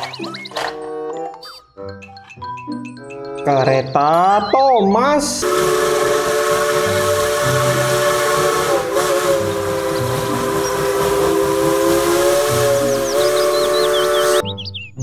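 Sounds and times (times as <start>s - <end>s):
steam hissing: 5.4s - 14.4s
steam locomotive whistle: 5.4s - 14.4s.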